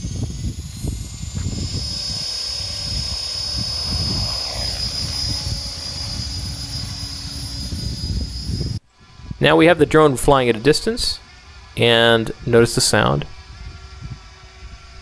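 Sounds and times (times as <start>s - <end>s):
high motor screech: 0.0s - 15.0s
rotor thumping: 0.1s - 8.6s.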